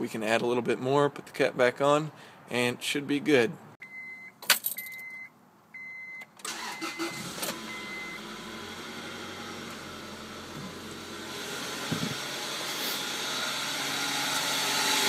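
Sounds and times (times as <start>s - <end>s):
car warning chime beeping: 3.8s - 8.3s
car engine cranking and starting: 6.4s - 15.0s
car engine fast idle: 6.5s - 15.0s.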